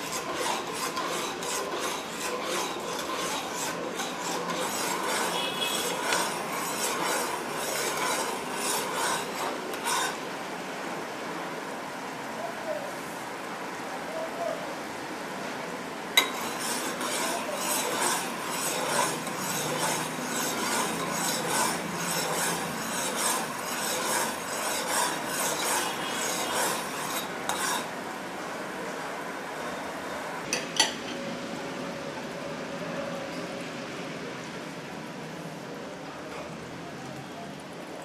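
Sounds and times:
spoon scraping a pan: 0.0s - 10.2s, 16.2s - 27.9s.

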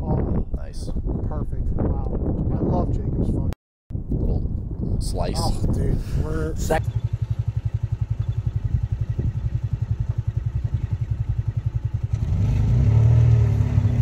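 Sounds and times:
golf cart running: 6.6s - 12.2s.

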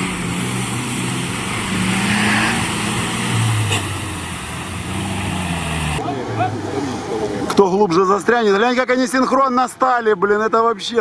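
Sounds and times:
wash of mud and water: 0.0s - 7.5s
off-road engine revving: 0.0s - 7.7s.

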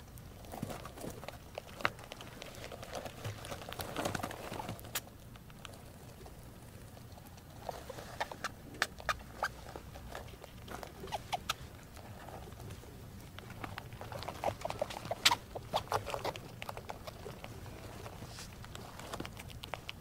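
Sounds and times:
rats crunching food: 0.0s - 20.0s
rats squeaking: 7.0s - 12.6s, 13.5s - 20.0s.

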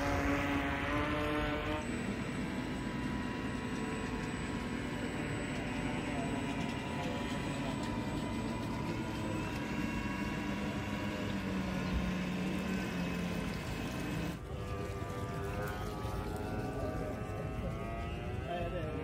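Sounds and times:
model boat motor humming: 0.0s - 19.0s
water wash noise: 7.4s - 19.0s.

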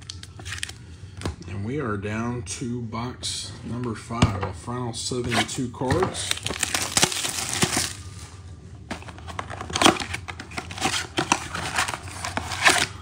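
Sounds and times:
cardboard box being torn open: 6.3s - 8.0s.

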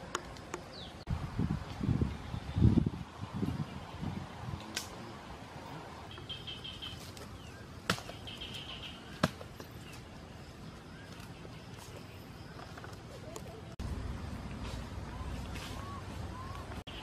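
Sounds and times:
bird trilling: 6.1s - 9.2s.

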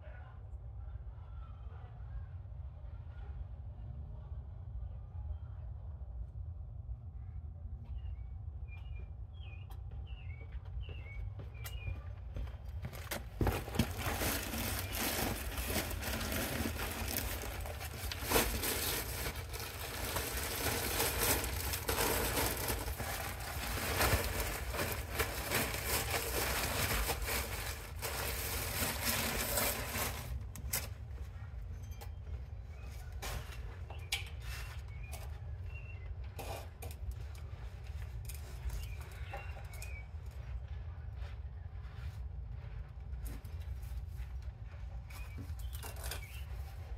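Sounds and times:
faint bird chirps: 7.2s - 12.6s, 38.6s - 40.6s
mulch pattering: 13.0s - 30.3s
plastic bags rustling: 13.0s - 30.5s.

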